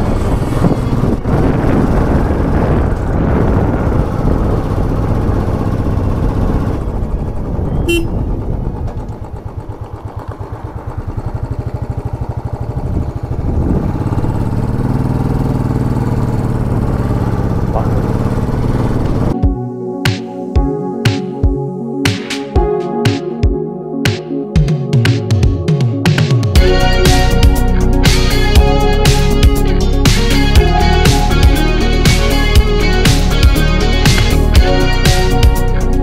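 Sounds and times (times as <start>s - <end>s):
motorcycle engine thumping: 0.3s - 19.4s, 34.1s - 34.7s.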